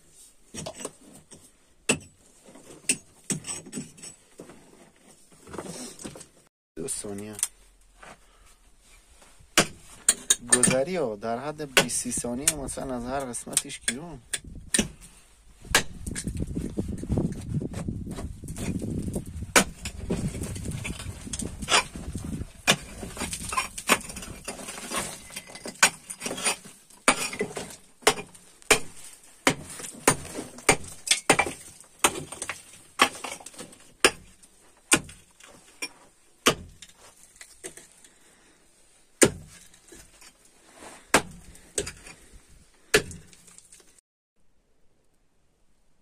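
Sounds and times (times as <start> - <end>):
pickaxe striking stone and earth: 0.5 - 4.2, 9.5 - 11.1, 11.7 - 17.4, 18.1 - 38.0, 39.2 - 40.4, 41.0 - 44.0.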